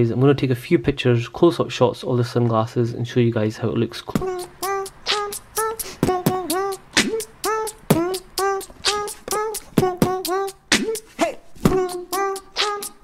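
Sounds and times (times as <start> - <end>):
pitched vocal-like notes: 4.1 - 13.0
percussive beat music: 4.2 - 13.0.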